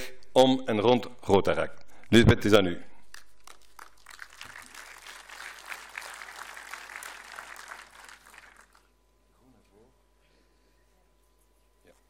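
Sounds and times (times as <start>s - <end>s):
audience applauding: 3.4s - 8.9s.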